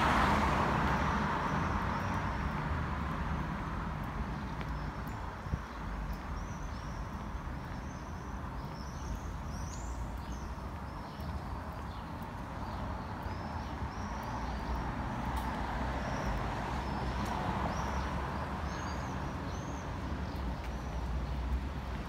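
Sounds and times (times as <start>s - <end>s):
road traffic rumble: 0.0s - 22.0s
small birds chirping: 3.3s - 22.0s.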